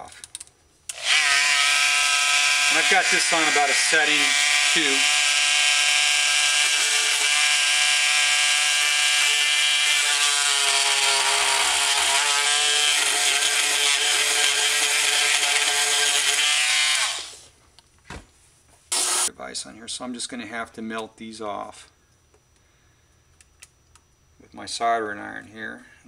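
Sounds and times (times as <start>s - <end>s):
oscillating multi-tool whine: 0.9s - 17.5s, 18.9s - 19.3s.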